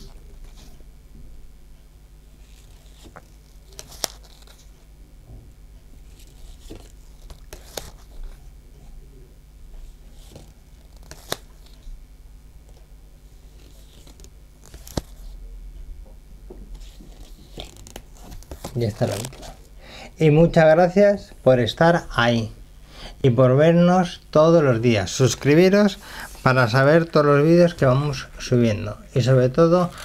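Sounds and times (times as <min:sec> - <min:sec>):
soft rustling of cards and gloves: 0:00.0 - 0:00.9, 0:02.3 - 0:09.1, 0:09.7 - 0:15.5, 0:16.1 - 0:22.5, 0:24.0 - 0:30.0
trading cards flicking: 0:10.2 - 0:11.8.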